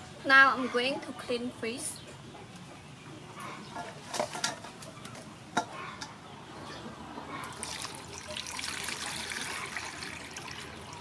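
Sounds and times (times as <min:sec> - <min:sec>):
water splashing into steel bowl: 0:07.5 - 0:11.0.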